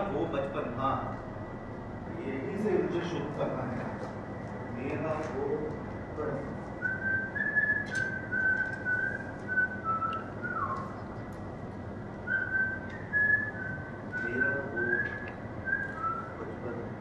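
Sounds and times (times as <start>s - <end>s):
person whistling a tune: 6.8s - 11.0s, 12.3s - 16.4s.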